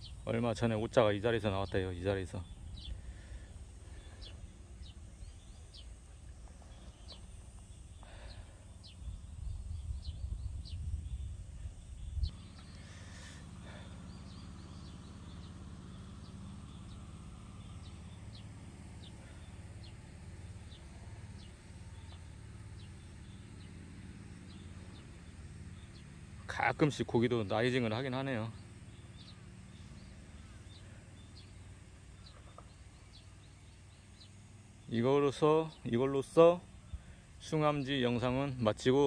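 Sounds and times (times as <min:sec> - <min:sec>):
faint bird chirps: 0:00.0 - 0:39.0
wind rumbling on microphone: 0:02.4 - 0:03.2, 0:08.8 - 0:12.4.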